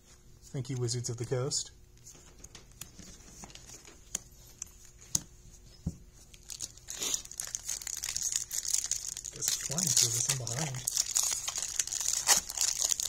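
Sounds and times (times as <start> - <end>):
foil wrapper crinkling: 6.3 - 13.0.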